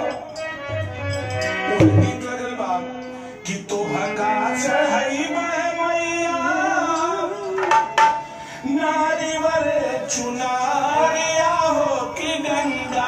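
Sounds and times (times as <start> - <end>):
harmonium: 0.0 - 13.0
dholak drum: 0.5 - 2.5, 7.2 - 8.4
man singing: 1.6 - 13.0.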